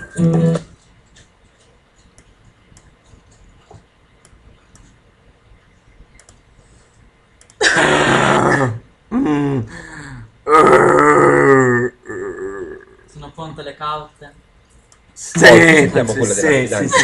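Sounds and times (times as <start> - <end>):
faint clicks: 5.6 - 6.5
person harsh vocal outburst: 7.6 - 9.8, 10.4 - 13.1.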